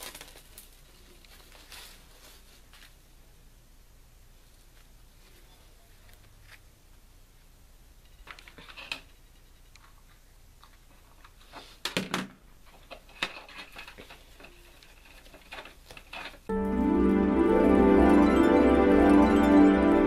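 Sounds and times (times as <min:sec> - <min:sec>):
faint rustling and handling: 0:00.0 - 0:03.4, 0:04.3 - 0:07.0, 0:08.0 - 0:16.5.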